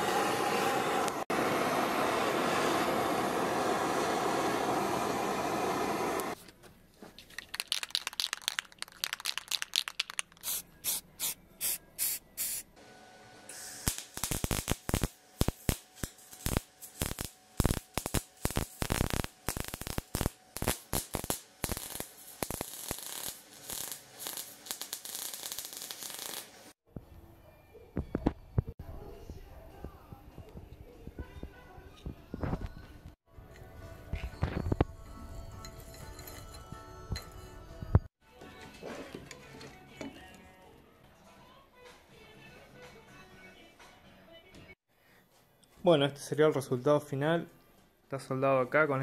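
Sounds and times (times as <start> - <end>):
blowtorch flame hissing: 0.0 - 6.4, 13.5 - 26.8
arc welder crackling: 13.5 - 26.8.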